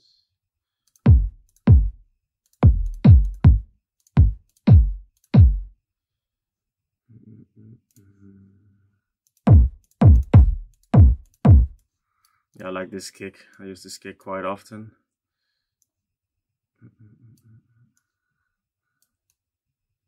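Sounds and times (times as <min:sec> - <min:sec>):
electronic kick drum thumps: 0:01.1 - 0:02.0, 0:02.6 - 0:05.7, 0:09.5 - 0:11.8.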